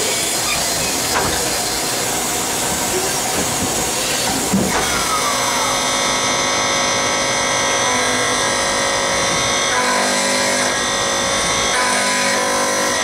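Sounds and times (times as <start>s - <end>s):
machining whine: 0.0s - 13.0s.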